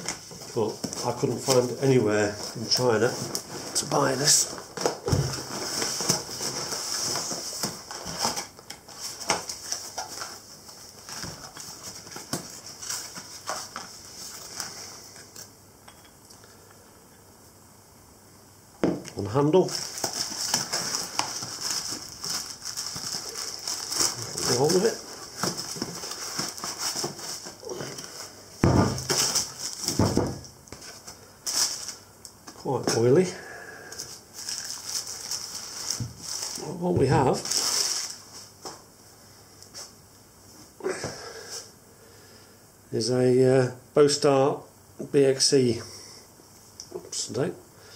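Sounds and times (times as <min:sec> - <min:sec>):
cardboard rustling and scraping: 0:00.0 - 0:15.2, 0:19.6 - 0:32.0, 0:34.0 - 0:38.7.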